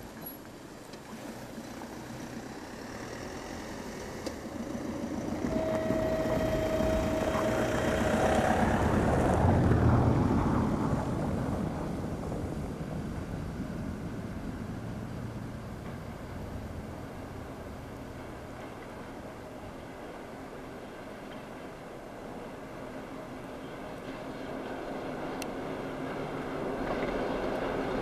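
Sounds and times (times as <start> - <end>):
diesel locomotive engine rumble: 0.0 - 28.0
steady tone: 4.7 - 11.4.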